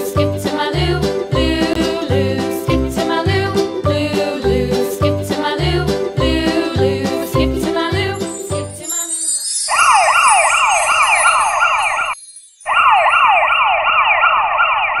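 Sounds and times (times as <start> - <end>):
background music: 0.0 - 12.0
sparkling chime: 8.0 - 13.6
siren rising sweeps: 9.7 - 15.0.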